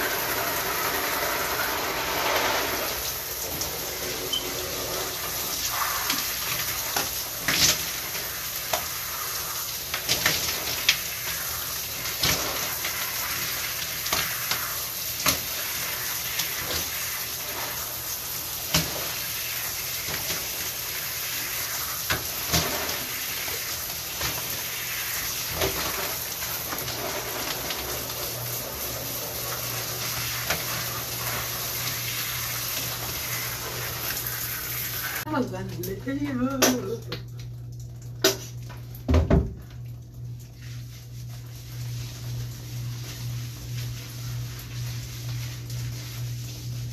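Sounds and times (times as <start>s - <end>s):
shower water running: 0.0s - 46.9s
sharp taps and splashes: 35.8s - 40.5s.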